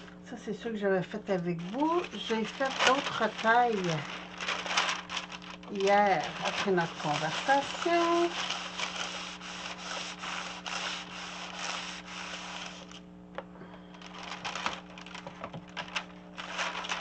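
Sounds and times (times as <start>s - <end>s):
iron rubbing over paper: 1.5s - 13.0s, 14.0s - 15.2s, 15.8s - 17.0s
paper rustling and tapping: 1.6s - 9.2s, 14.0s - 17.0s.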